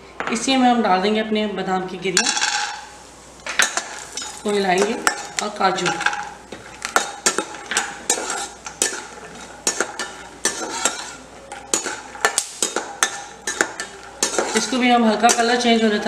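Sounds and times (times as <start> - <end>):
nuts sizzling in hot oil: 2.4 - 16.0
metal spatula scraping a pan: 3.6 - 16.0.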